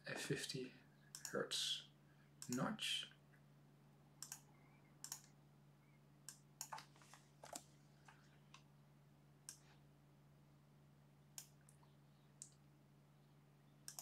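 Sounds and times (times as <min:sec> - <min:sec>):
faint low hum: 0:00.0 - 0:14.0
computer mouse clicking: 0:01.1 - 0:01.4, 0:02.4 - 0:02.7, 0:04.2 - 0:05.4, 0:06.3 - 0:08.7.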